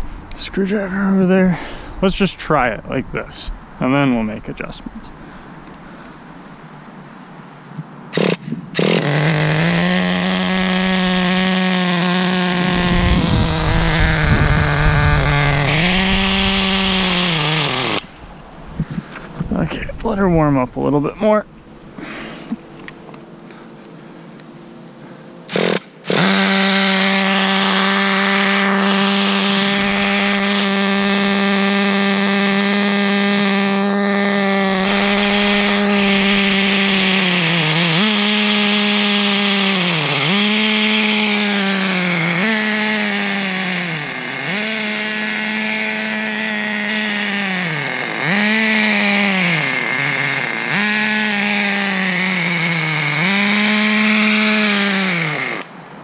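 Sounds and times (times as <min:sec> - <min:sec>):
model car engine revving: 0:08.1 - 0:18.2, 0:25.4 - 0:55.8.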